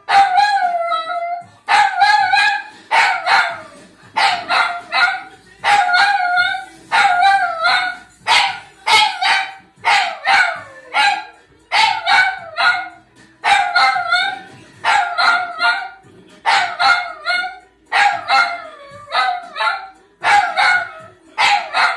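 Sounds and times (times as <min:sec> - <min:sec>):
dog howling: 0:00.0 - 0:08.1, 0:11.9 - 0:16.0, 0:16.6 - 0:21.9
television: 0:00.0 - 0:21.9.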